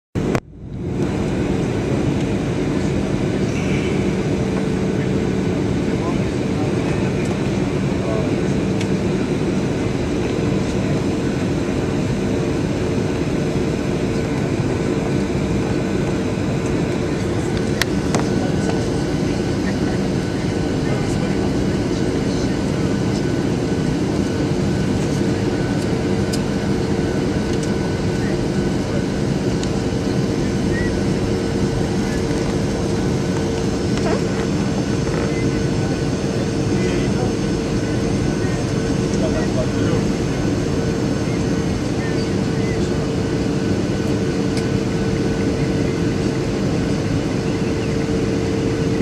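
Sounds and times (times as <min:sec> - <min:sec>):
airflow past aircraft fuselage: 0:00.2 - 0:49.0
constant low drone: 0:00.2 - 0:49.0
jet engine roar in cabin: 0:00.2 - 0:49.0.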